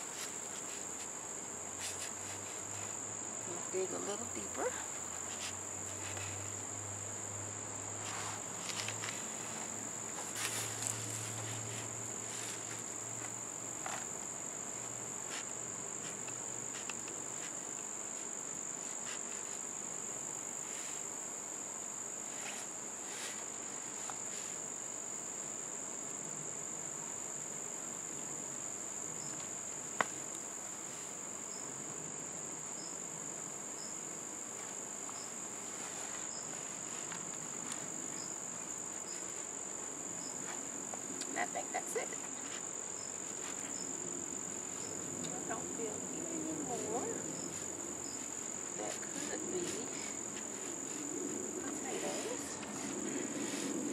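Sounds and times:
crickets chirping: 0:00.0 - 0:53.9
hands rustling through soil: 0:01.8 - 0:03.0, 0:08.0 - 0:19.7, 0:35.6 - 0:38.0, 0:46.8 - 0:53.9.

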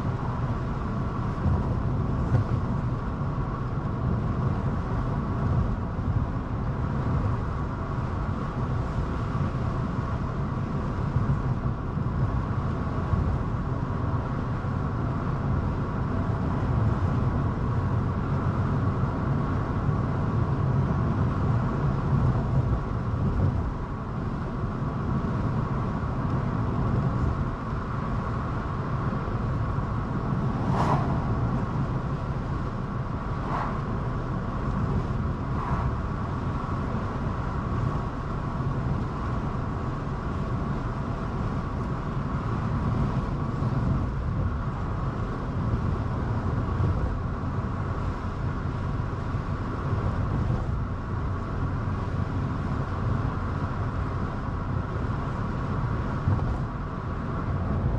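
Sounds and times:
car tyre and engine noise: 0:00.0 - 0:57.9.

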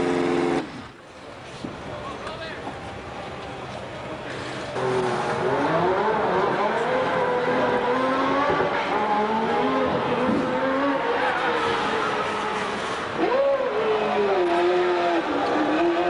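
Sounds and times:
racing car engines revving: 0:00.0 - 0:01.0, 0:04.2 - 0:16.0.

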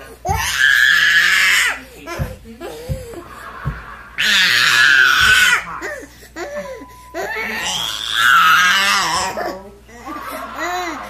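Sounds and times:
low thumps: 0:02.1 - 0:04.4
toddler vocal sounds: 0:04.2 - 0:09.6.

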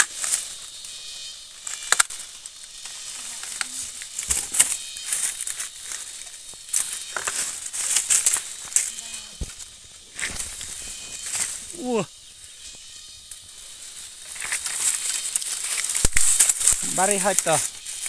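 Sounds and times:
dry bamboo leaves rustling: 0:00.0 - 0:18.0
stalks snapping: 0:01.6 - 0:09.0, 0:14.3 - 0:18.0.

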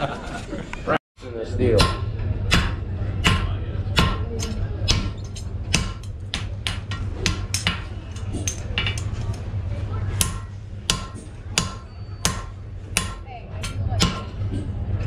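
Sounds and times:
hammer blows on anvil: 0:10.2 - 0:14.5.

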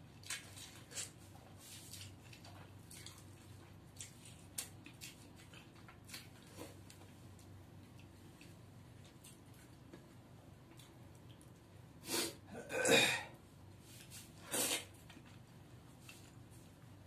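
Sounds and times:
man sucking and slurping food: 0:14.4 - 0:14.9.

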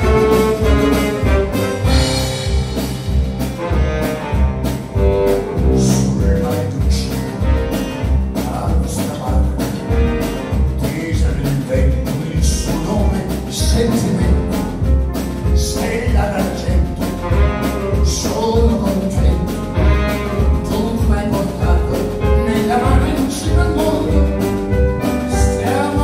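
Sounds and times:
saxophone: 0:00.0 - 0:11.1, 0:17.1 - 0:18.4, 0:19.3 - 0:20.8
double bass: 0:00.0 - 0:26.0
drums: 0:00.0 - 0:26.0
man singing: 0:05.6 - 0:26.0.

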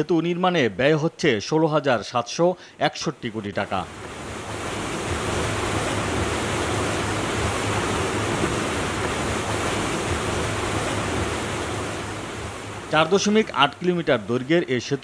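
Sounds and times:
river water rushing: 0:03.8 - 0:14.5
wind rushing: 0:03.9 - 0:13.1.

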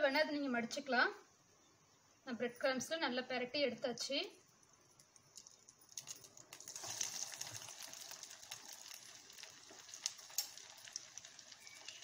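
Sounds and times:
oil sizzling and crackling: 0:04.4 - 0:12.0.

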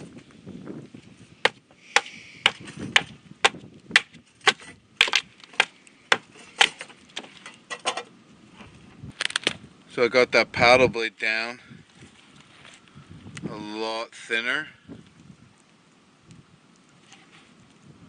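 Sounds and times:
knife chopping wood: 0:01.4 - 0:07.3.

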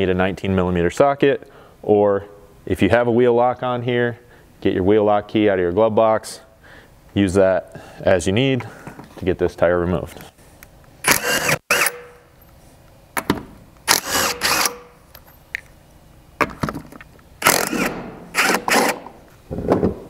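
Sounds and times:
impact wrench whining: 0:11.0 - 0:12.4, 0:13.2 - 0:15.4, 0:17.4 - 0:19.3.

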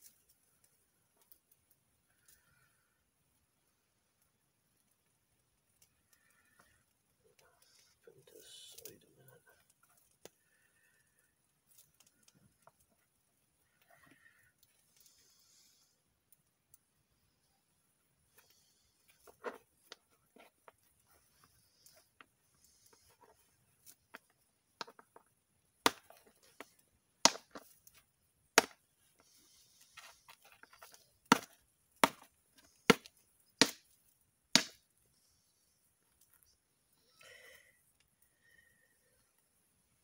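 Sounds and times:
flint knapping strikes: 0:18.4 - 0:34.9.

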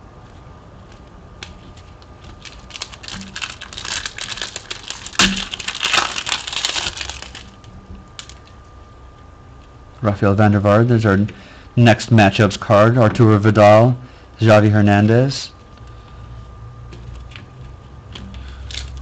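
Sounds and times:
foil wrapper crinkling and tearing: 0:01.9 - 0:08.6, 0:18.4 - 0:19.0
sharp snap of foil: 0:02.8 - 0:07.5.

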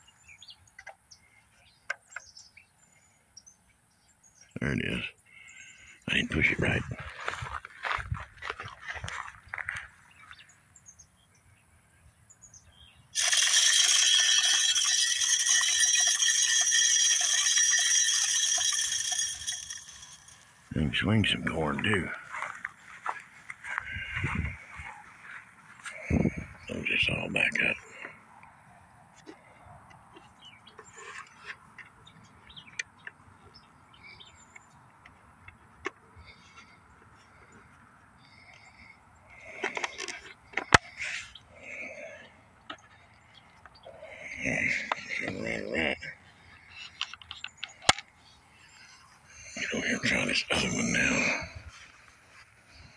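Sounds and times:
birds chirping: 0:00.0 - 0:52.9
faint outdoor background: 0:00.0 - 0:52.9
feeder spinner rattling corn: 0:13.2 - 0:21.0.

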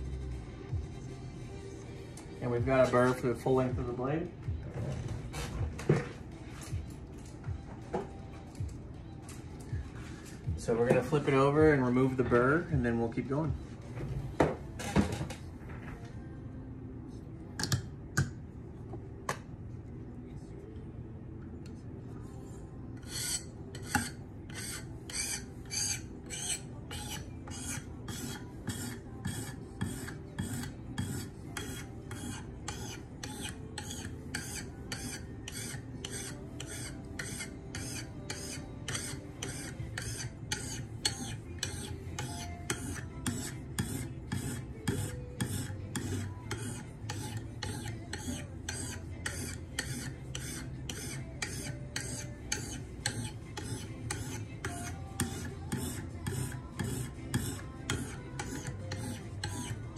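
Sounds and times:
sharpening stone scraping knife: 0:23.0 - 0:59.9.

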